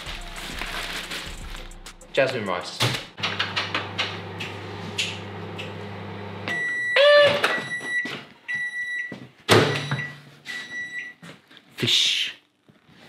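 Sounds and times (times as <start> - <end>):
microwave oven humming: 3.2 - 7.8
microwave beeper: 5.2 - 11.2.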